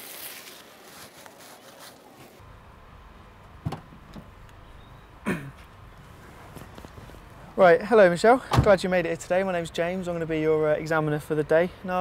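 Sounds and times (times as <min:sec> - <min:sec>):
low rumble from parked car: 0:02.4 - 0:11.5.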